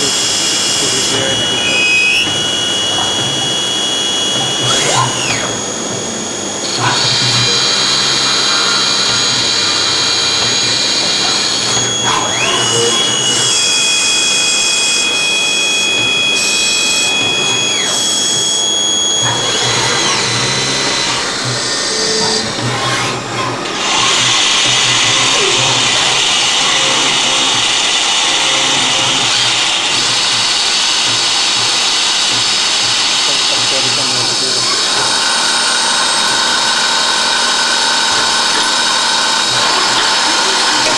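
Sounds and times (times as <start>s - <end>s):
machining hiss: 0.0s - 23.0s, 23.7s - 40.9s
lathe motors whining: 0.0s - 40.9s.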